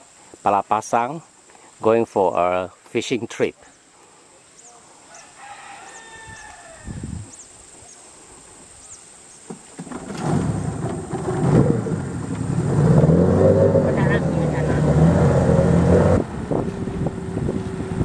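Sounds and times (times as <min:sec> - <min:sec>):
boat engine running: 0:09.9 - 0:18.0.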